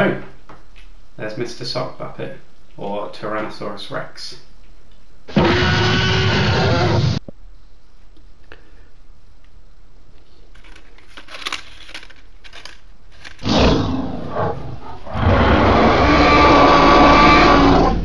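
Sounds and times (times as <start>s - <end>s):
dinosaur roar: 5.3s - 7.2s, 13.4s - 18.0s.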